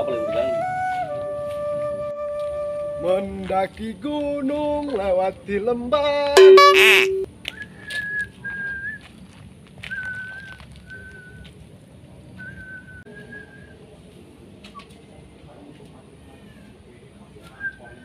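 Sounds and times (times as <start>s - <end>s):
man whistling a tune: 0.0s - 3.0s, 6.5s - 9.0s, 9.9s - 11.4s, 12.4s - 13.8s.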